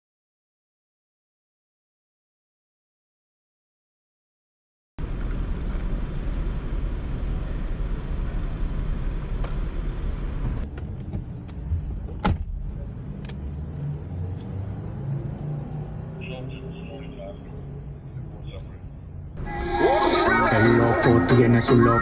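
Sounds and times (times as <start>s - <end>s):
traffic rumble: 5.0s - 22.0s.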